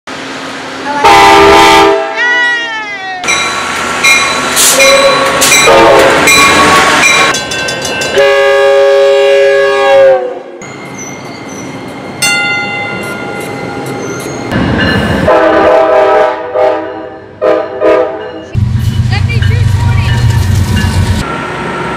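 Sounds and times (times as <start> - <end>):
rumble of passing train: 0.1 - 21.9
train air horn blasts: 1.0 - 2.2, 4.7 - 7.3, 8.2 - 10.5, 15.3 - 18.4.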